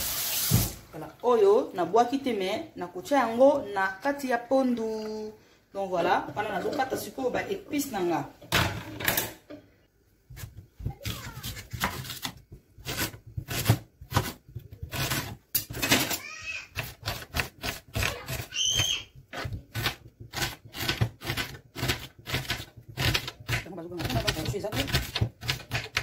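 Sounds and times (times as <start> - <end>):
knife chopping on cutting board: 10.3 - 15.8, 16.7 - 18.5, 19.2 - 26.0.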